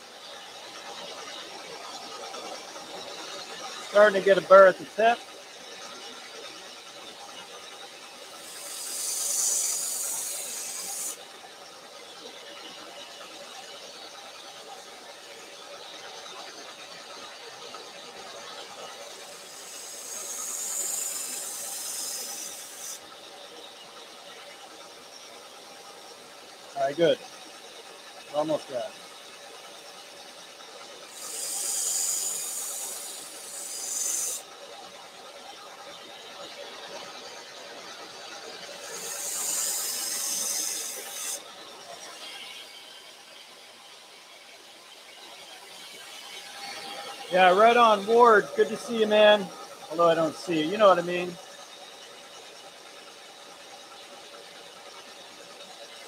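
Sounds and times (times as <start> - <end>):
belt sander motor running: 0.0 - 56.0
knife grinding on belt sander: 8.3 - 11.3, 18.3 - 23.2, 31.0 - 34.8, 36.9 - 44.1.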